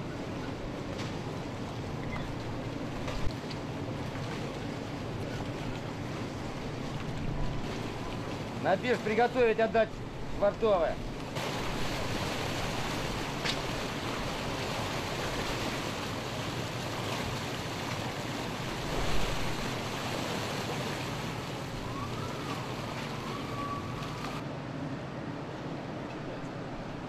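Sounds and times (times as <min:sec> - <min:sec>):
sea water rushing: 0:00.0 - 0:27.0
waves splashing: 0:00.0 - 0:27.0
wind: 0:00.0 - 0:27.0
faint whistling tone: 0:23.2 - 0:24.3.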